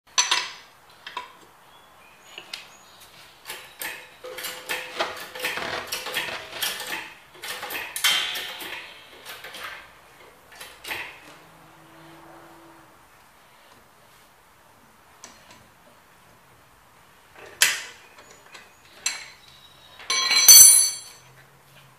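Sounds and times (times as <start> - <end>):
metal socket clinks and rattles: 20.1 - 21.2.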